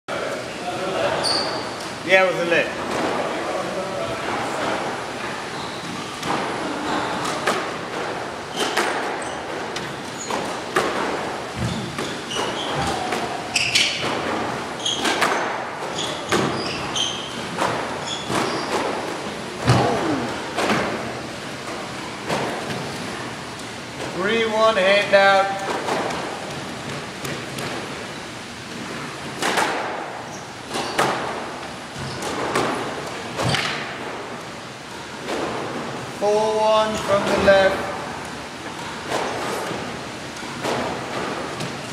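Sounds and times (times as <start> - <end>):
shoes squeaking on wooden floor: 1.2 - 1.8, 5.3 - 7.4, 11.5 - 14.2, 14.8 - 19.0, 32.0 - 32.4
racket hitting squash ball: 6.2 - 22.9, 29.2 - 34.3, 38.7 - 41.9
ball hitting court walls: 7.2 - 23.1, 29.2 - 34.2, 38.8 - 41.8.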